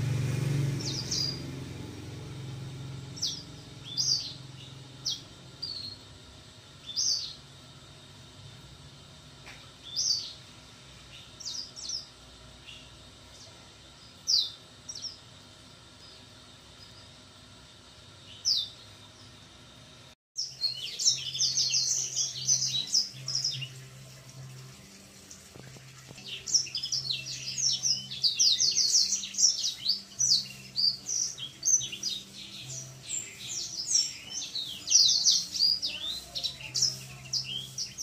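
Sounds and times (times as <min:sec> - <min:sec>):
young finch twittering: 0:00.8 - 0:01.5, 0:03.2 - 0:06.0, 0:06.8 - 0:07.4, 0:26.2 - 0:38.0.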